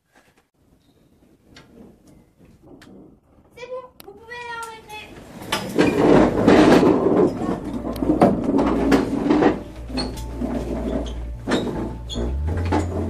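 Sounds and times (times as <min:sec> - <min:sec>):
chairs scraping: 0:01.0 - 0:03.8, 0:04.9 - 0:13.0.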